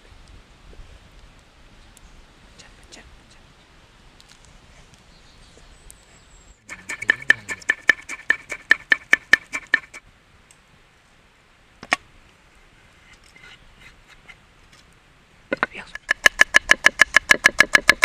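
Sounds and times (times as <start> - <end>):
knife chopping on wooden board: 6.7 - 10.0, 16.0 - 18.0.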